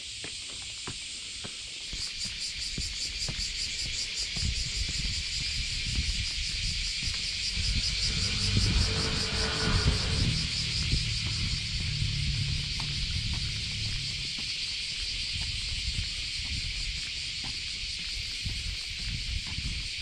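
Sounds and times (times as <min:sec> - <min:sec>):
footsteps on stone steps: 0:00.0 - 0:07.5, 0:14.3 - 0:20.0
cicadas buzzing: 0:00.0 - 0:20.0
low rumble: 0:05.2 - 0:17.6
pulsing high drone: 0:05.8 - 0:17.4.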